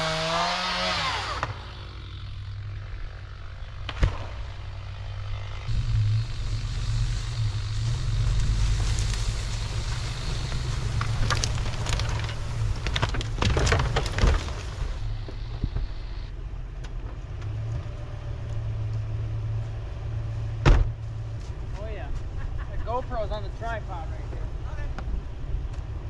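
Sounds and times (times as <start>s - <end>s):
truck engine humming: 1.2s - 26.0s
snow and brush crackling under tyres: 4.7s - 16.3s.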